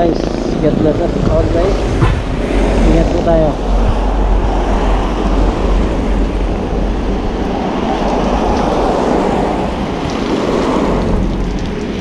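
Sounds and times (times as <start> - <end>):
wind rumbling on microphone: 0.0 - 12.0
steady rain: 1.2 - 12.0
car tyres hissing on wet road: 3.7 - 12.0.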